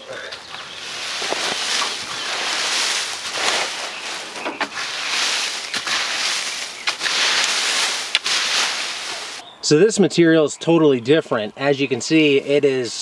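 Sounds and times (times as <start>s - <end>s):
tines clicking on wood: 0.4s - 9.4s
fork raking dry wood chips: 0.5s - 9.4s.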